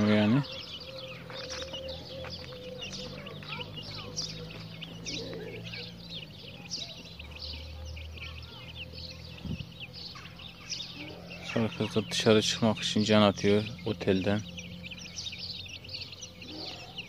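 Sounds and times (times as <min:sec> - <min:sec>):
chicks peeping: 0:00.0 - 0:17.0.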